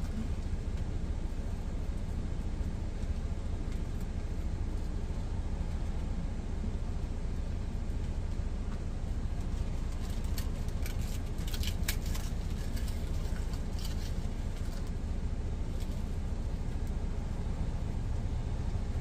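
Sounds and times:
truck engine rumble: 0:00.0 - 0:19.0
crisp tortilla crackling: 0:09.4 - 0:14.9.

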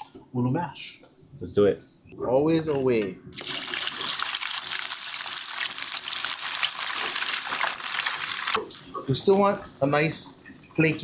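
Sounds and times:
fish sizzling in hot oil: 0:03.4 - 0:08.6.

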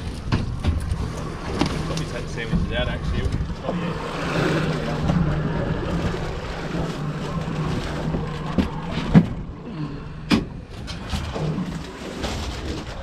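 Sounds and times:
boat engine idling: 0:00.0 - 0:13.0.

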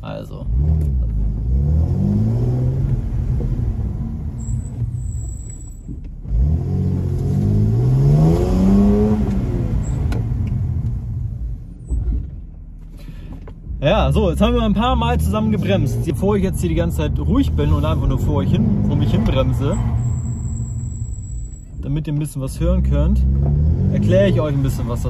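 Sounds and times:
car engine revving: 0:00.4 - 0:25.0
brake squeal: 0:04.2 - 0:06.0, 0:18.9 - 0:21.9.

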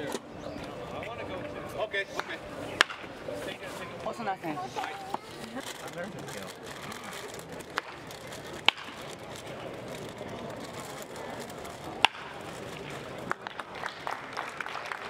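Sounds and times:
outdoor murmur: 0:00.0 - 0:15.0
sharp cracks: 0:02.2 - 0:03.1, 0:05.6 - 0:13.6.

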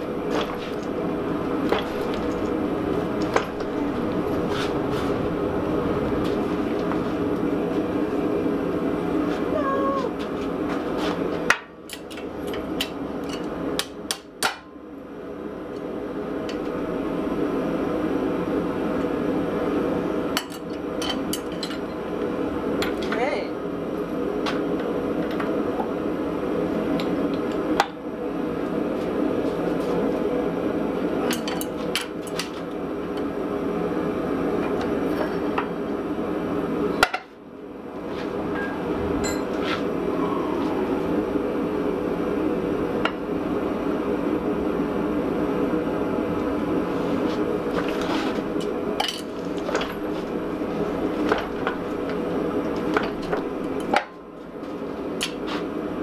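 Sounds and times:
hydraulic forging press drone: 0:00.0 - 0:08.5, 0:48.3 - 0:54.2.

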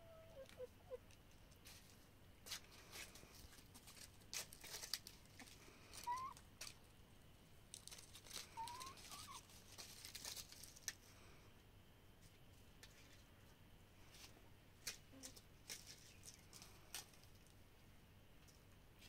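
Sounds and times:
soft hen calls: 0:00.0 - 0:01.1, 0:05.9 - 0:06.4, 0:08.5 - 0:09.5
hens pecking and scratching: 0:00.0 - 0:19.0.

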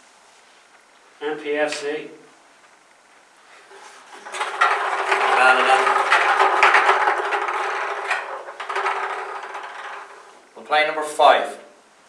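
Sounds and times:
plastic balls clattering in drum: 0:03.7 - 0:10.5.

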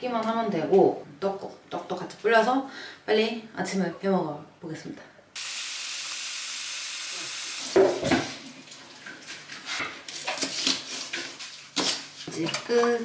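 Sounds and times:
tap water running into bowl: 0:07.2 - 0:09.4
kitchen knocks and rustles: 0:07.7 - 0:13.0.

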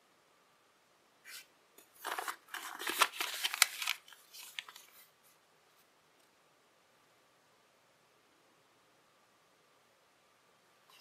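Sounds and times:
paper rustling and crinkling: 0:01.3 - 0:05.2.

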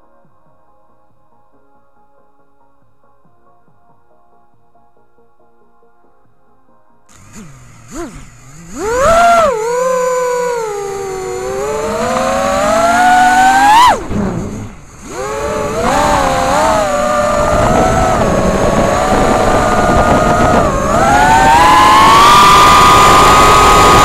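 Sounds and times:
drone propellers whining: 0:07.1 - 0:24.0.

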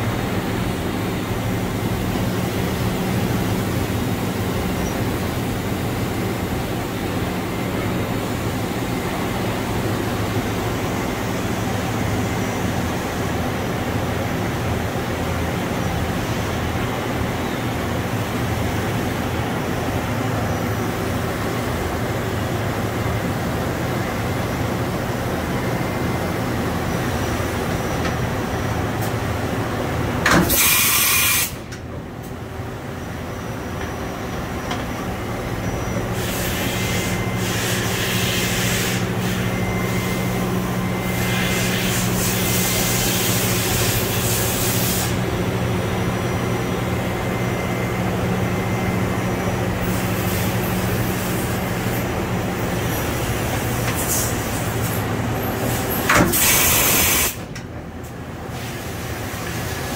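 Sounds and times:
machine hum and drone: 0:00.0 - 0:59.9
air hissing bursts: 0:30.5 - 0:31.7, 0:36.1 - 0:39.5, 0:56.3 - 0:57.5.

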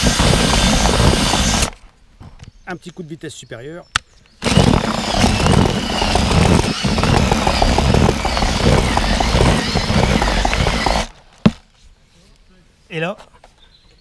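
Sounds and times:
electric whisk churning mix in bucket: 0:00.0 - 0:01.7, 0:04.4 - 0:11.1.

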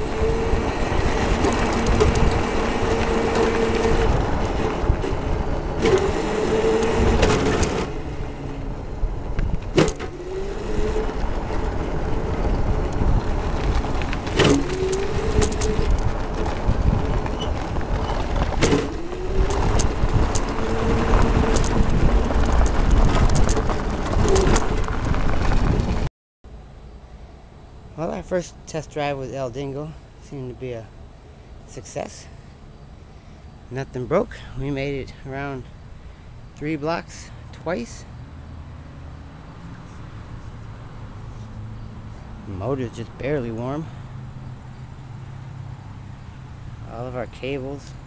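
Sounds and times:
electric motor and chain whine: 0:00.0 - 0:26.1
tyre and road rumble: 0:00.0 - 0:48.0.

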